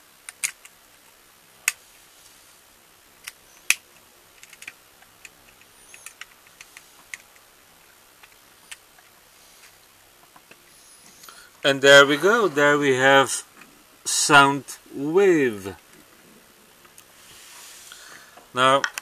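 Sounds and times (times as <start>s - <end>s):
plastic toy clicks and snaps: 0.3s - 0.7s.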